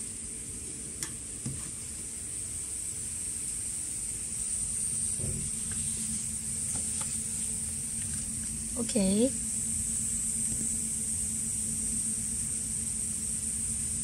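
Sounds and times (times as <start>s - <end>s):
machine-room hum: 0.0s - 14.0s
high hiss: 1.1s - 14.0s.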